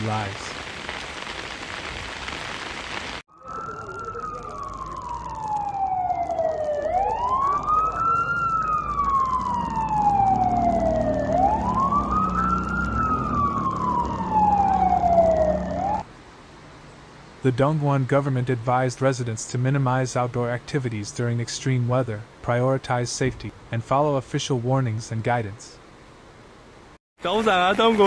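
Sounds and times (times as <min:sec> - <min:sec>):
rain hiss: 0:00.0 - 0:03.2, 0:25.2 - 0:28.0
emergency siren wailing: 0:03.3 - 0:16.0.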